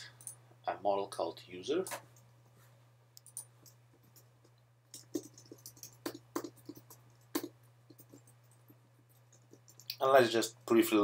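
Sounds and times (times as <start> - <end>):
low steady hum: 0.0 - 11.0
keyboard and mouse clicks: 3.2 - 10.0.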